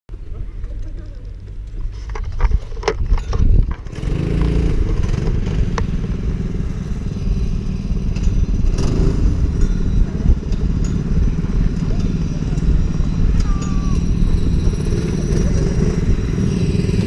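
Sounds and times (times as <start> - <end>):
knocks and clatter from camera handling: 2.0 - 3.9
go-kart engine idling: 3.6 - 17.0.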